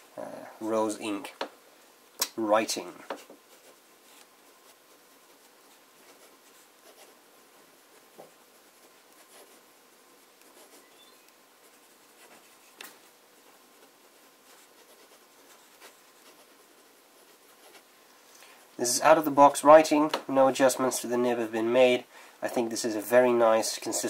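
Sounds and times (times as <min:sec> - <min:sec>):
fountain pen scratching on paper: 0:03.1 - 0:07.2, 0:07.8 - 0:09.6, 0:10.2 - 0:17.9.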